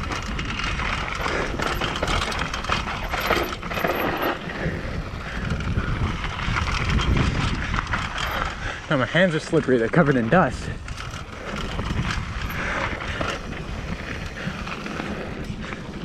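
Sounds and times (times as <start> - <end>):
tyres crunching over dirt: 0.0 - 5.3
bike chain and frame rattling: 0.0 - 16.0
wind noise rumble: 0.0 - 16.0.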